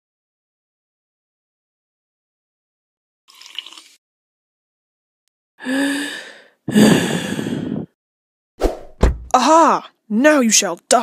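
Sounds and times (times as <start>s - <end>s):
breathy exhales: 5.6s - 8.0s.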